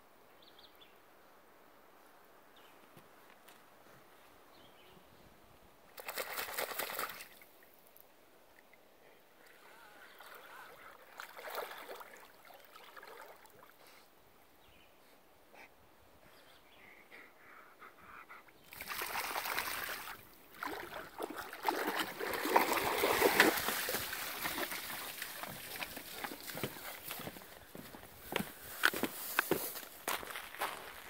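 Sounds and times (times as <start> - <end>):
faint water sounds: 4.1 - 28.9
dog splashing in water: 6.0 - 7.4, 18.7 - 27.2.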